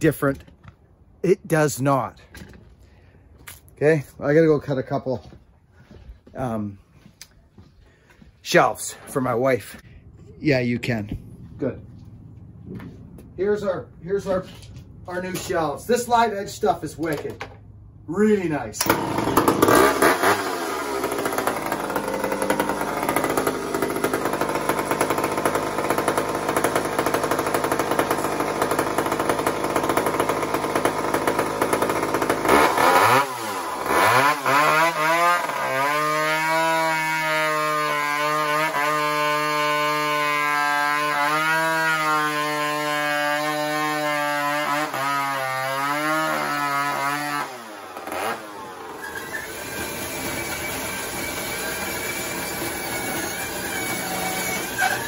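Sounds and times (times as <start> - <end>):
chainsaw cutting wood: 18.8 - 55.0.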